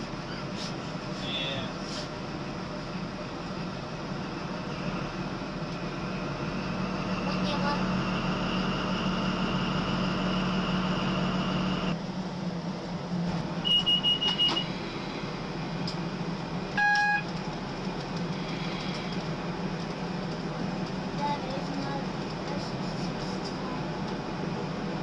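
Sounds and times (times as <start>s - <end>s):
locomotive engine drone: 0.0s - 25.0s
whining tone: 7.3s - 12.0s
short high beeps: 13.7s - 14.7s, 16.8s - 17.2s.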